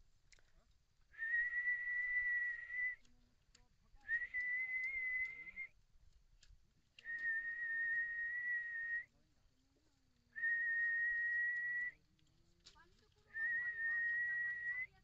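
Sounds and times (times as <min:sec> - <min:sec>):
man whistling long notes: 0:01.2 - 0:03.0, 0:04.1 - 0:05.7, 0:07.0 - 0:09.1, 0:10.4 - 0:12.0, 0:13.4 - 0:14.9.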